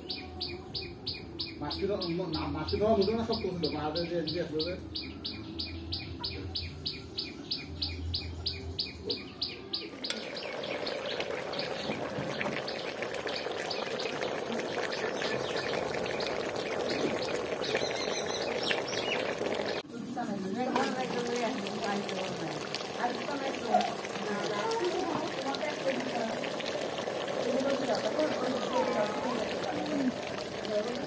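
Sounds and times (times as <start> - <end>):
bird chirping: 0.0 - 19.8
curry bubbling and crackling in pot: 9.9 - 31.0.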